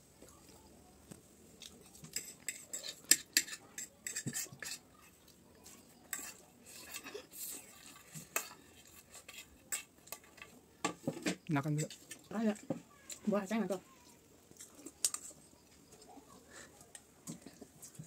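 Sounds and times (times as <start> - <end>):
fork clinking and scraping on plate: 1.8 - 10.5.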